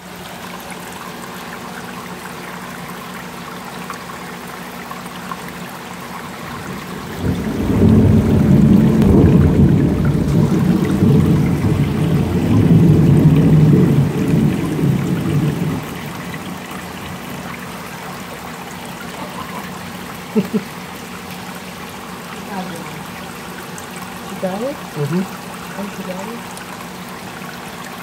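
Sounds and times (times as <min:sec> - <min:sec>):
water rushing from tank filter: 0:00.0 - 0:28.0.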